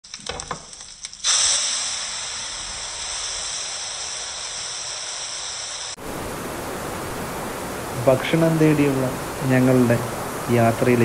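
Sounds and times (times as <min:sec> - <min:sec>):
food sizzling in a frying pan: 0:00.1 - 0:07.1.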